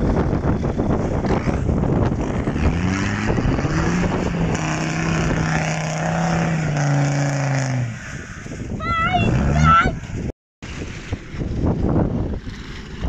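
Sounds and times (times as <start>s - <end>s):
car engine revving: 0.6s - 8.6s.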